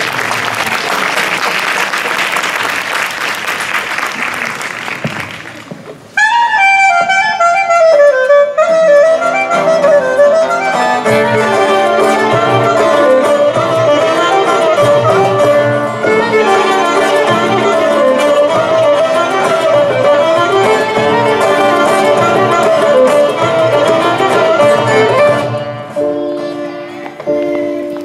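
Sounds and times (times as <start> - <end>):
audience applause: 0.0 - 5.9
folk band playing dance tune: 5.0 - 28.0.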